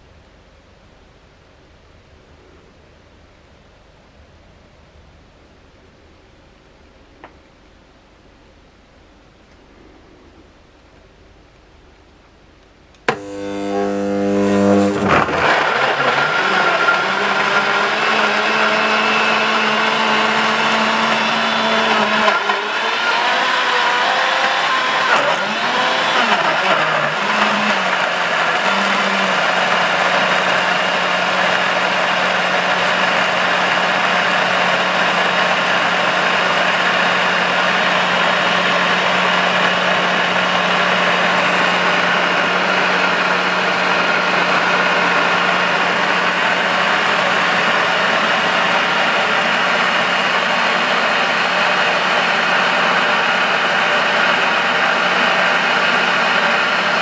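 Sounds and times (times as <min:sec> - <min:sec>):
blender motor drone: 0:13.1 - 0:57.0.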